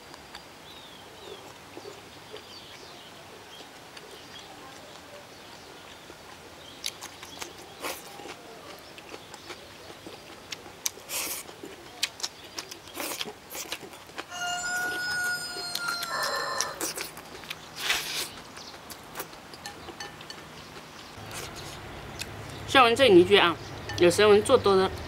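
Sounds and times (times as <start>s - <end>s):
chewing: 1.2s - 22.6s
rooster crowing: 14.3s - 16.9s.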